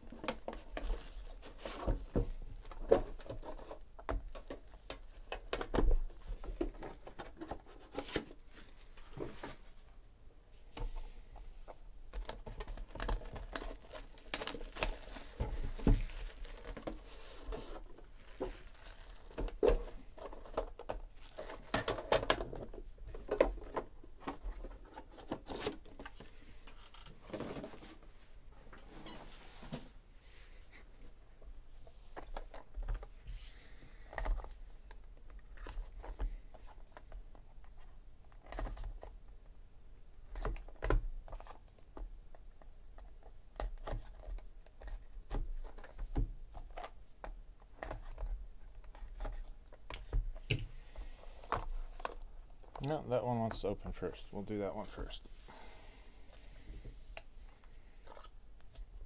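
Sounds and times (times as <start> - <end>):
plastic shrink wrap crinkling: 12.2 - 20.6.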